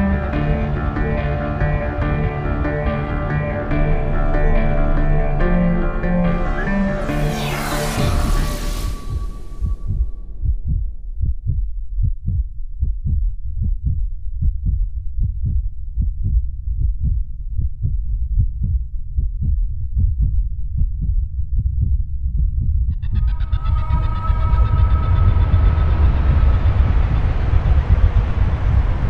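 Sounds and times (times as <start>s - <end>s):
heartbeat thuds: 8.9s - 23.2s.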